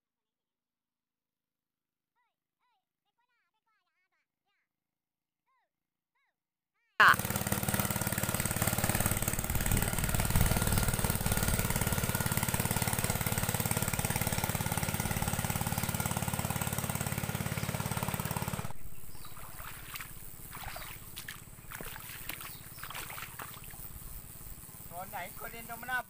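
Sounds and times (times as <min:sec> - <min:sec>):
small boat engine running: 0:07.0 - 0:26.0.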